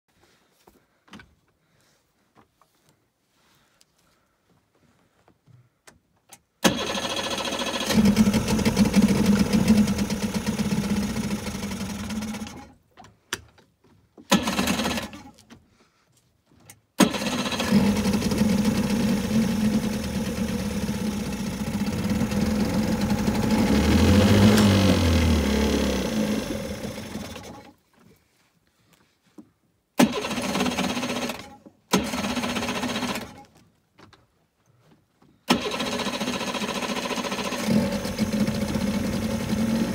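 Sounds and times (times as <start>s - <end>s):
outboard motor running: 6.7s - 12.7s, 17.1s - 27.7s, 35.6s - 39.9s.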